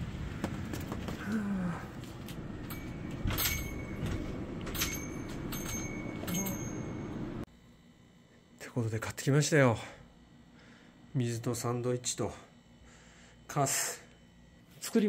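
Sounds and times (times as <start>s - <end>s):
steady low rumble: 0.0s - 7.5s.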